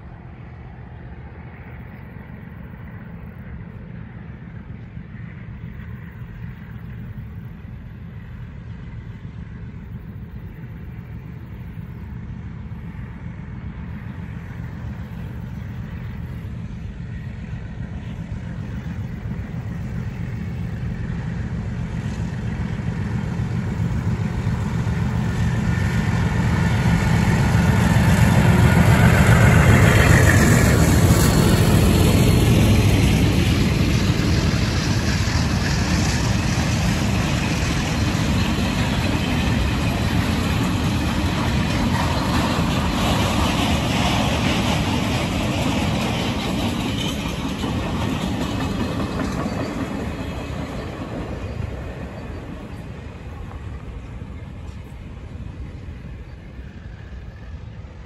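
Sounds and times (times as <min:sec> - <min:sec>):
diesel locomotive engine drone: 0:00.0 - 0:58.0.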